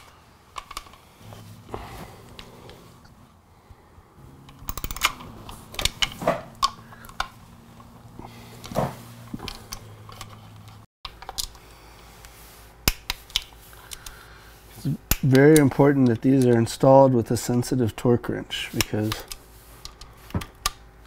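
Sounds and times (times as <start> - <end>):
ratcheting torque wrench clicking: 4.5 - 7.3.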